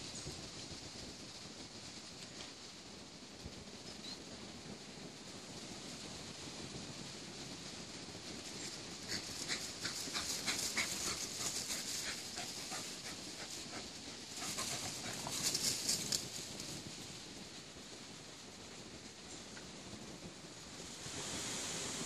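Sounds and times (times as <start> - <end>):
paws crunching dry leaves: 8.5 - 16.9
dogs panting: 8.6 - 16.2.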